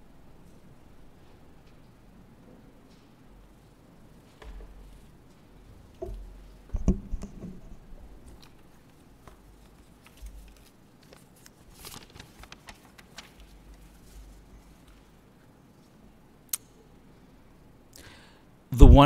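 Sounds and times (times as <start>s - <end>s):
light clicks and rustling: 4.1s - 16.0s.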